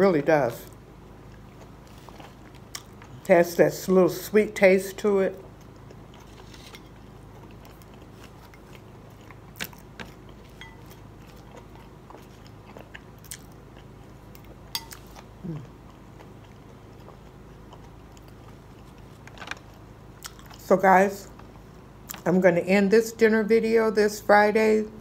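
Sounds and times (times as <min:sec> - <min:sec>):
low room hum: 0:00.0 - 0:25.0
chewing and biting: 0:01.2 - 0:03.3, 0:05.4 - 0:20.6.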